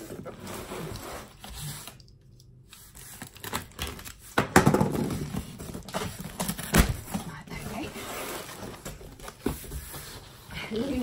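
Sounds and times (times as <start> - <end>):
cardboard scraping and rustling: 0.0 - 2.0, 5.0 - 11.0.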